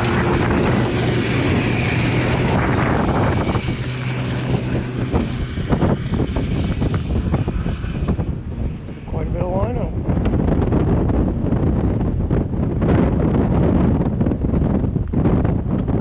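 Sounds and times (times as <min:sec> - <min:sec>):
engine running: 0:00.0 - 0:16.0
wind buffeting microphone: 0:00.0 - 0:16.0.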